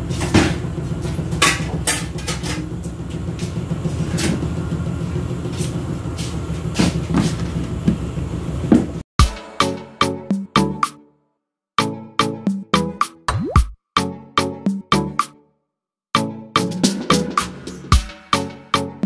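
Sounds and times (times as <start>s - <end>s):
low mechanical rumble: 0.0s - 9.0s
knocks and clatters: 0.1s - 9.0s
music: 9.2s - 19.0s.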